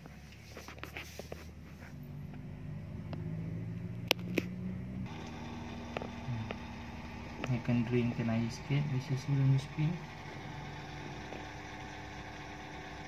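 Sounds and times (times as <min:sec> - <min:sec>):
washing machine humming: 0:01.9 - 0:13.0.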